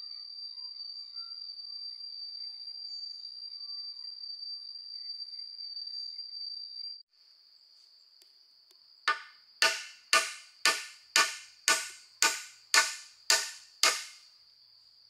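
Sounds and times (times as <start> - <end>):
insects droning: 0.0 - 15.0
ringing tool strikes: 9.1 - 14.2.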